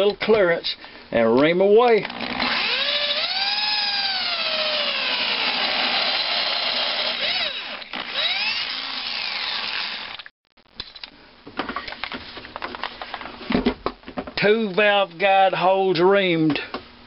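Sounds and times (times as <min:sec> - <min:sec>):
power drill reaming metal: 0:02.0 - 0:10.3.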